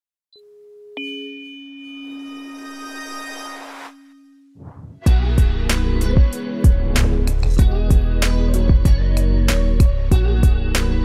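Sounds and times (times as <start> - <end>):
music with deep bass and beat: 5.0 - 11.0.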